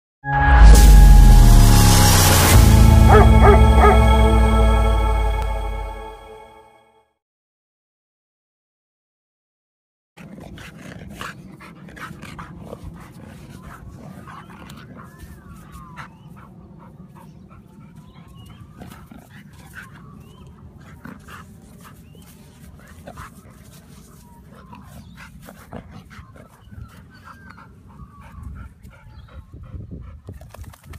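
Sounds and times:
steady low rumble: 0:00.4 - 0:06.4
paws scraping dirt: 0:10.2 - 0:29.5, 0:30.1 - 0:30.9.

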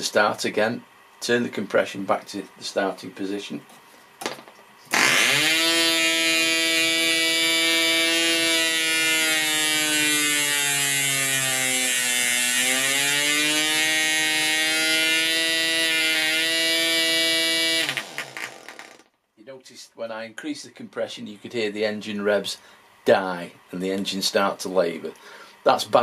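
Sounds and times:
model engine running at high revs: 0:05.0 - 0:19.0.

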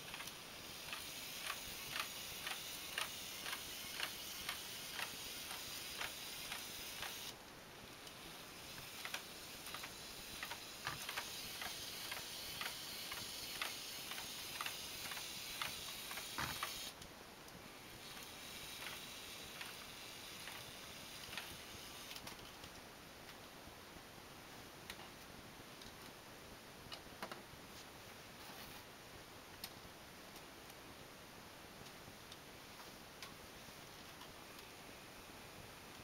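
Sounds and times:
robot legs clicking: 0:00.0 - 0:07.3, 0:08.1 - 0:16.9, 0:18.0 - 0:22.4
steady hiss: 0:00.0 - 0:36.0.

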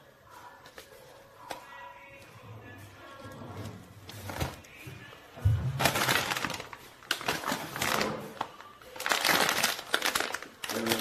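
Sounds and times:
plastic bag crinkling: 0:05.5 - 0:11.0.

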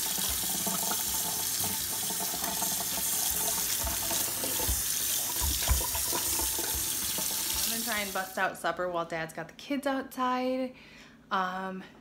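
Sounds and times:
water splashing into sink: 0:00.0 - 0:08.3
kitchen faucet running: 0:00.0 - 0:08.4.

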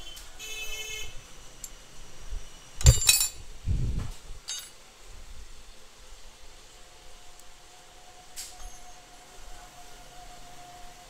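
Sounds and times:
metal tools clinking: 0:02.8 - 0:03.4, 0:04.4 - 0:04.8.

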